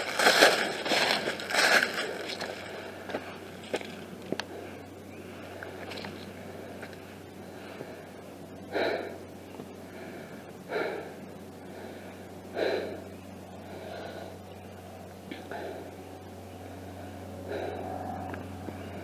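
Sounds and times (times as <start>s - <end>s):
low background hum and rustle: 0.0s - 19.0s
heavy gasping breaths: 4.3s - 14.5s, 15.3s - 16.0s, 16.6s - 19.0s.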